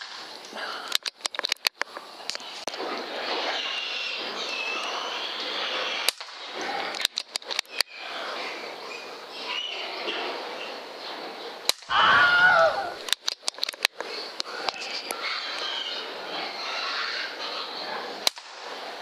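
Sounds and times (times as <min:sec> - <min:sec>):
quick clicks: 0:00.0 - 0:02.8, 0:06.1 - 0:07.9, 0:13.0 - 0:15.1
steady hiss: 0:00.0 - 0:19.0.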